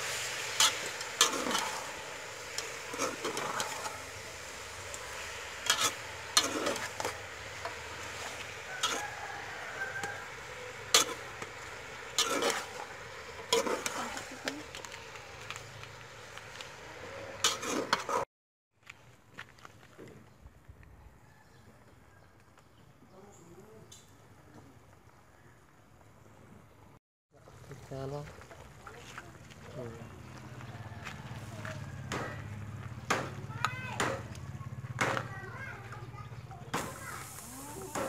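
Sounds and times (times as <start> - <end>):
food sizzling: 0.0 - 18.3, 31.2 - 38.0
metal spatula scraping a pot: 0.1 - 4.1, 5.4 - 9.2, 9.8 - 14.6, 17.4 - 18.3.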